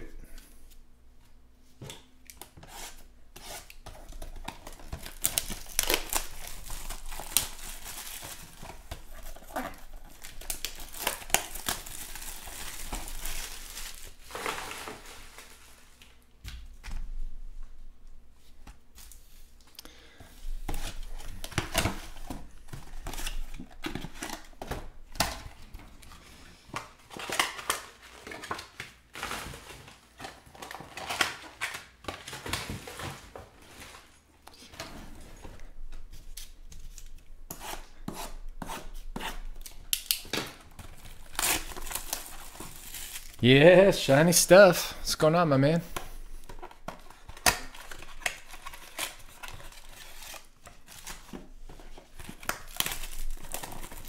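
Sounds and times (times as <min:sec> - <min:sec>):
plastic wrap crinkling and tearing: 0:03.6 - 0:16.2, 0:20.6 - 0:34.1, 0:39.0 - 0:45.2, 0:46.0 - 0:54.0.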